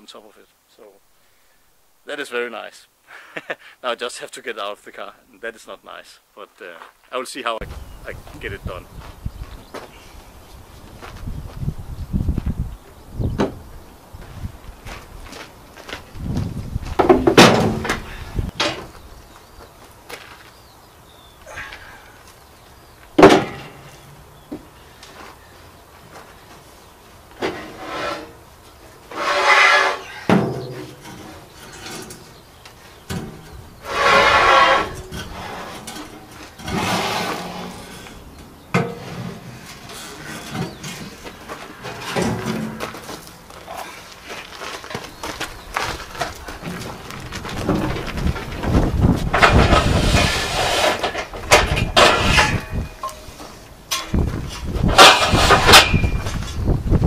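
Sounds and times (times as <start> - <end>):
metal sheet scraping on floor: 27.4 - 28.4, 29.1 - 30.1, 33.8 - 38.2, 41.7 - 43.0, 49.3 - 52.6, 54.8 - 56.3.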